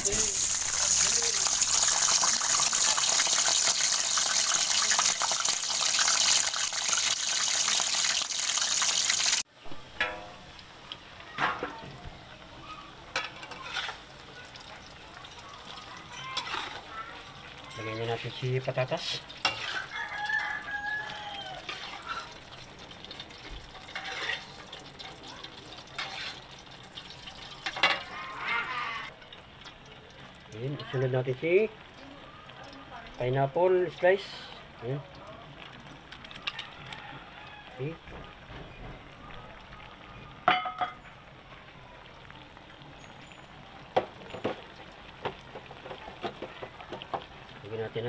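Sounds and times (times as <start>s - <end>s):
liquid bubbling in a pot: 12.3s - 36.9s, 41.1s - 48.0s
rooster crowing: 19.6s - 22.2s, 36.4s - 38.0s.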